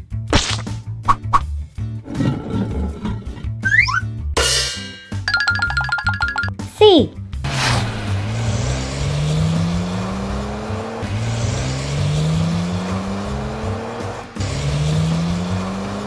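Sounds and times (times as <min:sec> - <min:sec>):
background music: 0:00.0 - 0:16.0
race car engine revving: 0:07.4 - 0:16.0.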